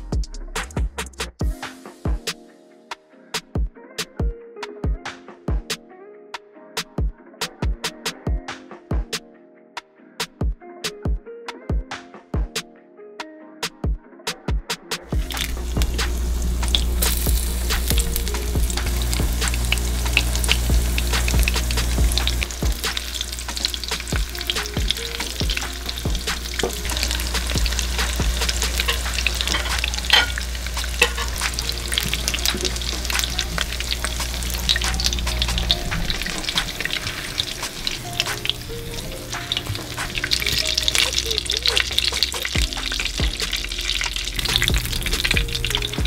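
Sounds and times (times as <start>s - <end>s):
fish frying in oil: 15.1s - 46.0s.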